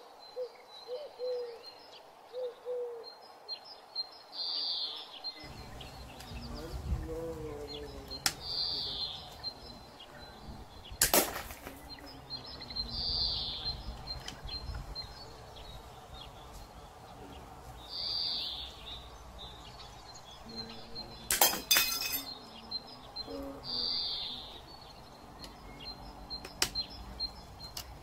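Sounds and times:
slingshot snap: 11.0 - 11.7.

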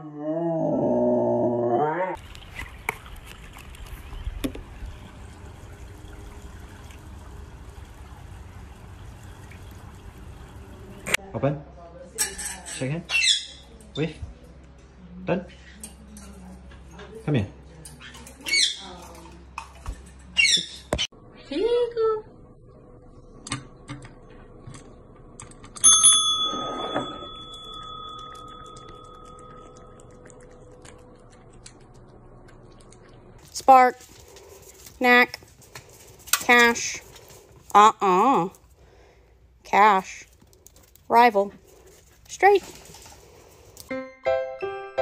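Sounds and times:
pool water lapping: 2.2 - 11.2
service bell ding: 25.8 - 29.8.

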